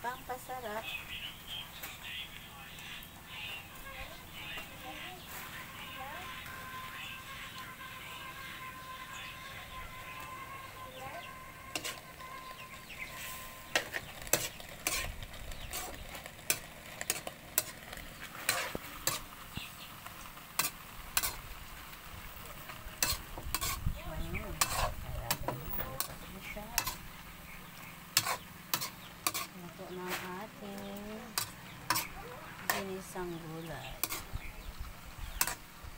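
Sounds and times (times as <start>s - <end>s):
food sizzling: 0.0s - 35.9s
metal spatula scraping a wok: 3.5s - 21.6s, 22.4s - 34.4s, 35.3s - 35.7s.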